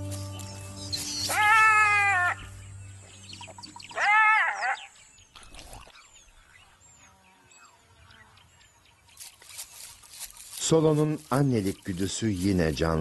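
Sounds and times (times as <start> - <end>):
faint high bird chirps: 0.0 - 10.5
jackal yelp: 1.2 - 2.4, 3.9 - 4.9.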